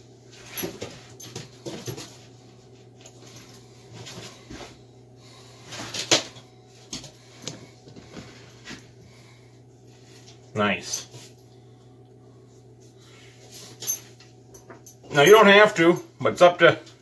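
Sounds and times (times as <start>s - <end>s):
low hum: 0.0s - 15.2s.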